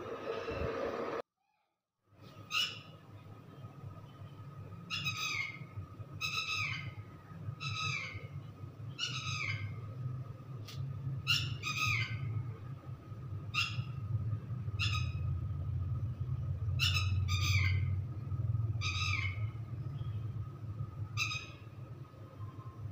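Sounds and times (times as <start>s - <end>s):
low hum: 6.9s - 22.9s.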